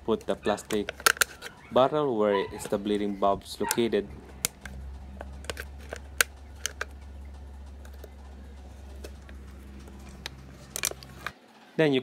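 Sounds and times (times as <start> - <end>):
steady low hum: 0.0 - 11.6
plastic bottle clicking and crinkling: 0.2 - 1.6, 4.4 - 7.0, 8.9 - 11.4.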